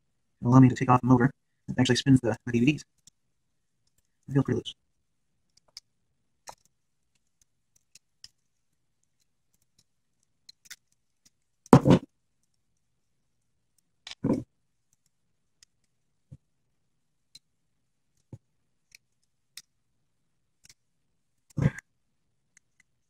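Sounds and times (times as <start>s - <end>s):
small screwdriver clicking and scraping: 5.5s - 11.4s.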